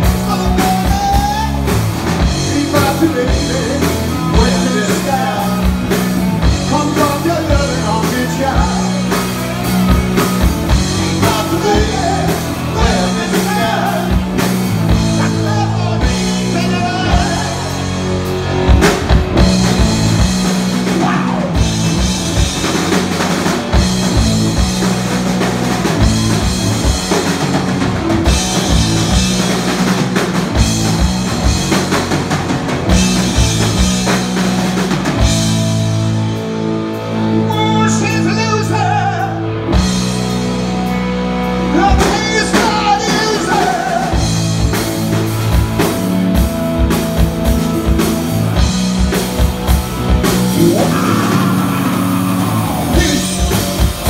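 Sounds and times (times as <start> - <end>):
male singer: 0.0 - 6.0, 6.6 - 9.2, 10.9 - 17.8, 20.9 - 21.6, 37.3 - 39.5, 41.7 - 44.3, 50.6 - 53.9
bass guitar: 0.0 - 54.0
drum kit: 0.0 - 54.0
electric guitars: 0.0 - 54.0.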